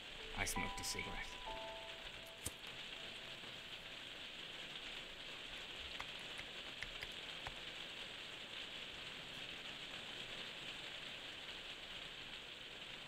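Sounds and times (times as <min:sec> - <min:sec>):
steady hiss: 0:00.0 - 0:13.0
faint clicks: 0:05.9 - 0:07.6.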